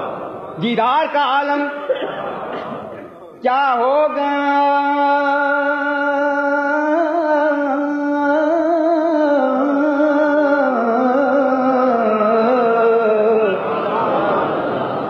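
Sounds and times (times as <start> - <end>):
man singing unaccompanied: 3.4 - 13.6.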